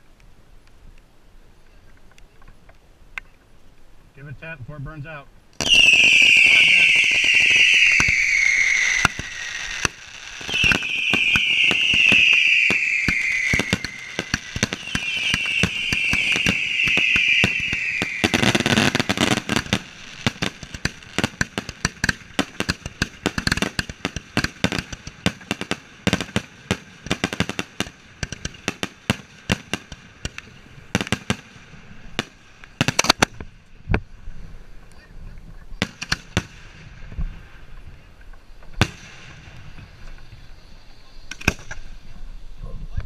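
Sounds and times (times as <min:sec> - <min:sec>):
firework whistles falling in pitch: 0:05.6 - 0:20.9
firework crackling pops and bangs: 0:05.6 - 0:34.1, 0:35.8 - 0:40.6, 0:41.2 - 0:41.9.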